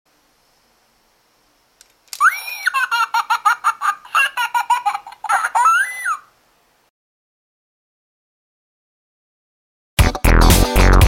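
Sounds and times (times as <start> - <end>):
high-pitched cartoon giggle: 2.2 - 6.3.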